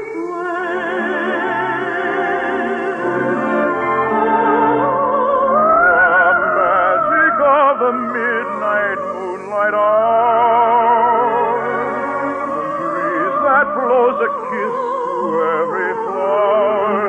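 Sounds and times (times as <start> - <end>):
operatic singing: 0.0 - 17.0
orchestral accompaniment: 0.9 - 7.0.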